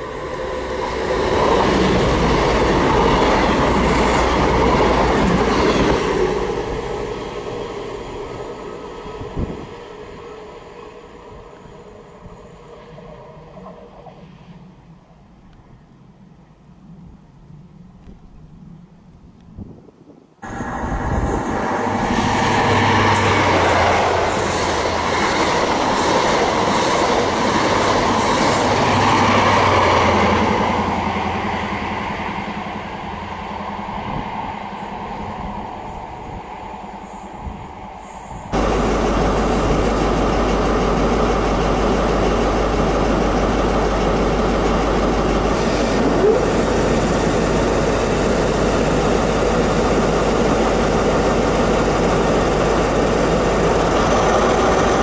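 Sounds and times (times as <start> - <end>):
diesel train running: 0.0 - 14.8, 20.4 - 55.0
diesel engine idling: 38.6 - 55.0.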